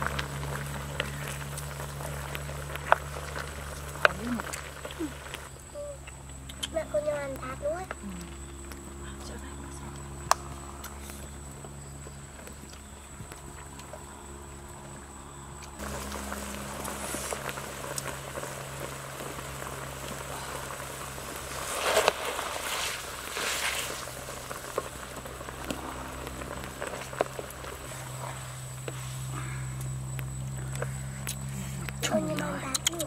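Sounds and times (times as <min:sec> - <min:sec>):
broth bubbling in a wok: 0:00.0 - 0:06.8, 0:15.8 - 0:31.5.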